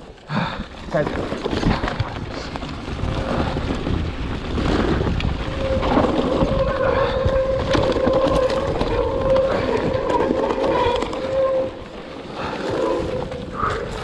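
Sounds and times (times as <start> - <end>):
mountain bike rattling on trail: 0.0 - 14.0
wind buffeting microphone: 0.5 - 14.0.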